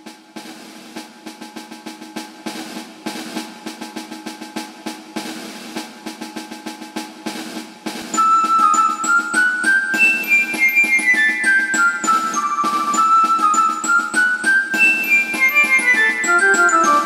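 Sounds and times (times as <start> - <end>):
snare drum roll: 0.0 - 17.0
music tune: 8.1 - 17.0.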